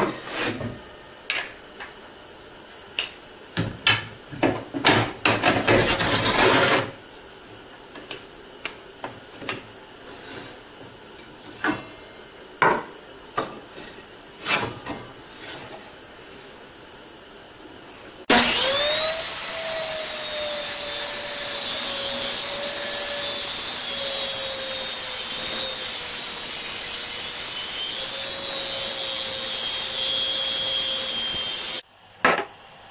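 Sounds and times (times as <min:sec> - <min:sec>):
wood scraping on metal: 0:05.7 - 0:07.0.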